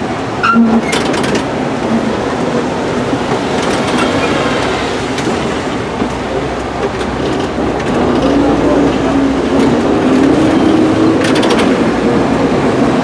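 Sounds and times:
tram cabin rumbling: 0.0s - 13.0s
sharp rattles and clicks: 0.8s - 1.6s, 3.3s - 5.4s, 11.2s - 11.9s.

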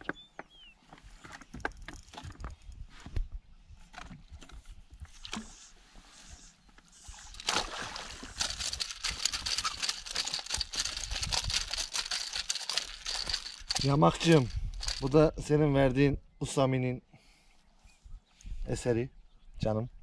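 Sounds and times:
fish splashing in water: 7.3s - 10.4s.

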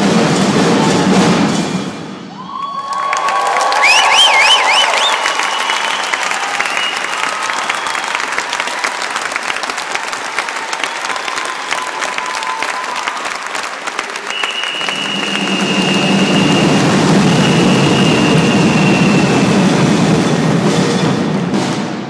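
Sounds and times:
audience applauding: 2.4s - 20.0s.

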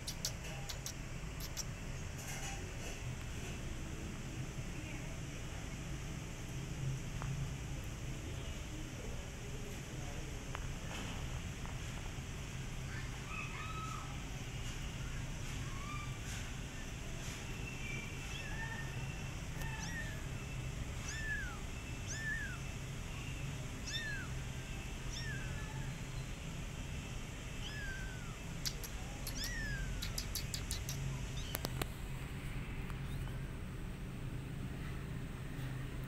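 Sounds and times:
kitten meowing: 0.0s - 1.7s, 18.3s - 20.3s, 21.0s - 22.7s, 23.8s - 24.4s, 25.0s - 25.9s, 27.6s - 31.8s
sharp clicks: 0.0s - 1.7s, 28.6s - 31.9s.

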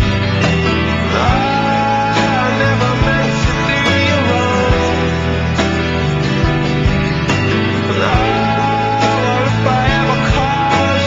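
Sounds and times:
guitar-led song with steady beat: 0.0s - 11.0s.

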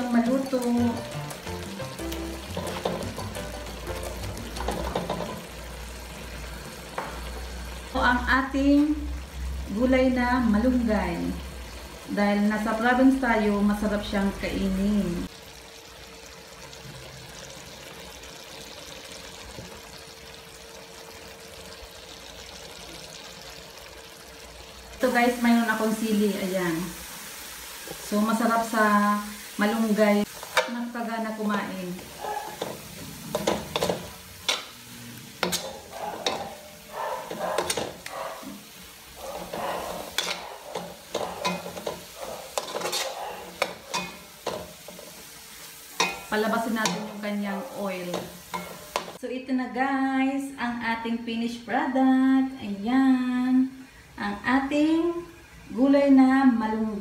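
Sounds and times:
sizzling: 0.0s - 57.0s
sauce simmering and bubbling: 15.3s - 25.0s
metal spatula scraping pan: 32.0s - 38.1s, 39.4s - 45.2s, 45.9s - 47.2s, 48.0s - 49.2s
spatula clacking against pan: 32.6s - 34.7s, 35.4s - 36.6s, 37.2s - 38.1s, 39.4s - 44.7s.

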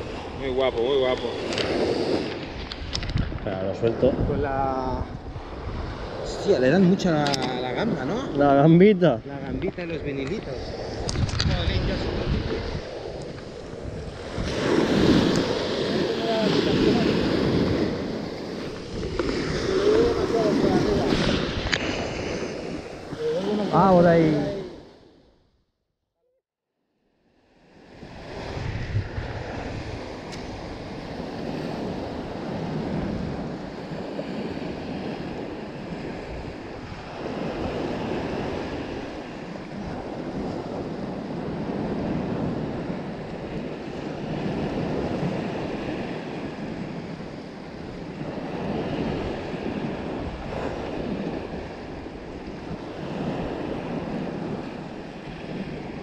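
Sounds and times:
small waves on sandy shore: 0.0s - 25.3s, 27.1s - 56.0s
wind on microphone: 0.0s - 25.6s, 27.7s - 56.0s.

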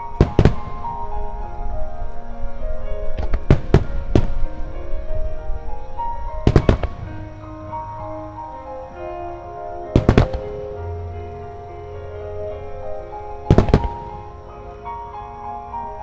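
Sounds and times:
music with held notes: 0.0s - 16.0s
firework shells bursting: 0.2s - 1.0s.

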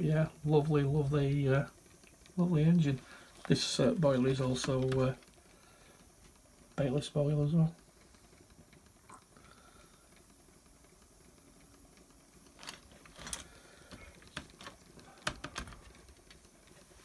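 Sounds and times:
light clicks and knocks: 12.5s - 16.5s.

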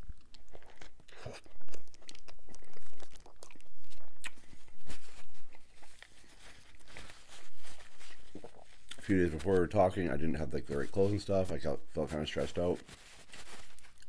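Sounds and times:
burger bitten and chewed: 0.0s - 9.8s
wet chewing and crunching: 0.0s - 10.7s, 13.2s - 14.0s
paper napkin rustling: 4.4s - 14.0s.

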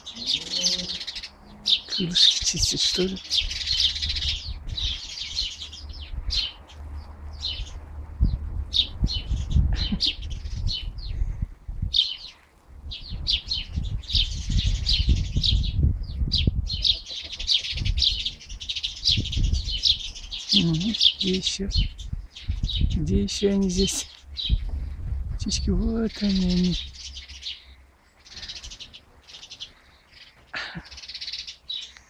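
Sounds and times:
small songbirds chirping: 0.0s - 32.0s
low rumble: 2.8s - 16.8s, 21.6s - 27.3s.

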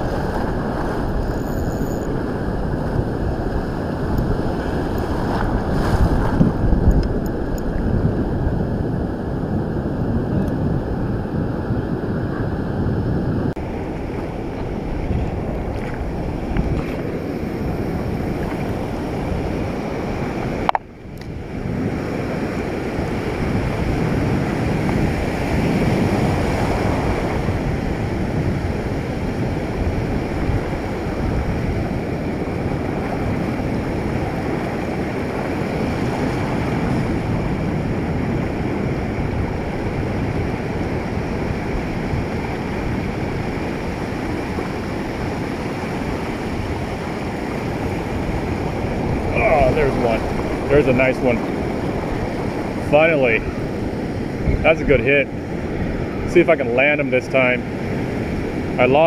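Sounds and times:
ocean surf breaking on beach: 0.0s - 59.0s
wind on microphone: 0.0s - 59.0s.

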